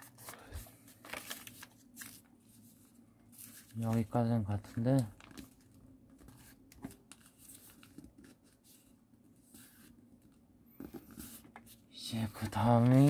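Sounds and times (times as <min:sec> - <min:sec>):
paper being folded: 0:00.0 - 0:02.7, 0:03.3 - 0:08.9, 0:12.4 - 0:13.0.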